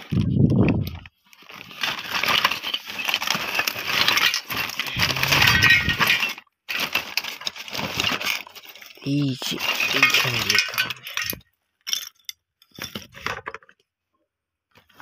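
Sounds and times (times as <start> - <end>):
plastic sack rustling: 0.0 - 11.4
scrap metal clinking in sack: 1.3 - 12.2.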